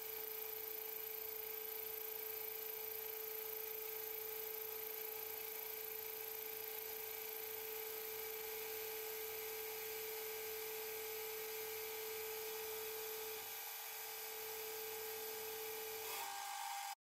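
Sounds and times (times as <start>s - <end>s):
metal lathe whining: 11.2s - 17.0s.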